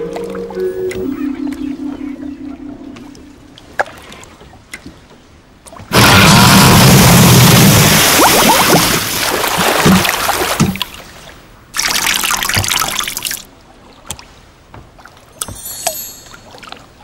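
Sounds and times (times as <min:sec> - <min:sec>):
water splashing: 0:00.0 - 0:17.0.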